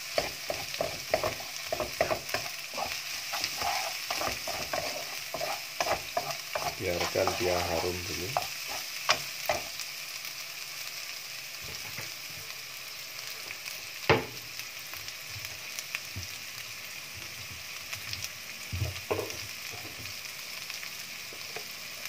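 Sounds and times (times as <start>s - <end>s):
food sizzling in hot oil: 0.0s - 22.0s
spatula knocking on pan: 0.1s - 9.7s
wooden spatula stirring: 0.2s - 9.7s.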